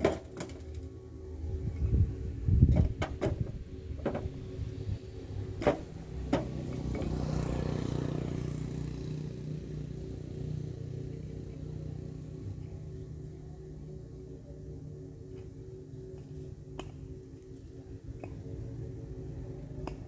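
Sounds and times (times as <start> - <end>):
bricks clattering into wheelbarrow: 0.0 - 0.8, 5.6 - 6.5
vehicle passing by: 3.5 - 13.9.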